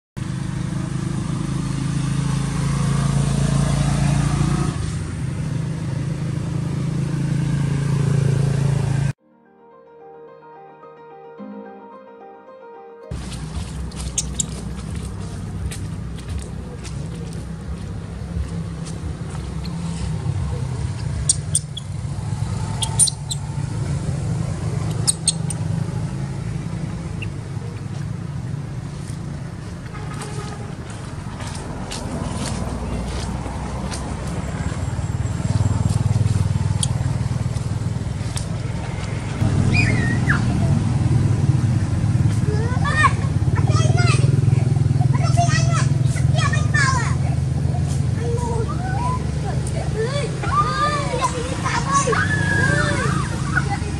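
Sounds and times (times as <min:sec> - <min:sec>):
engine humming: 0:00.2 - 0:09.2, 0:13.1 - 0:53.9
short high squeaks: 0:21.2 - 0:22.0, 0:22.7 - 0:23.6, 0:24.9 - 0:25.7.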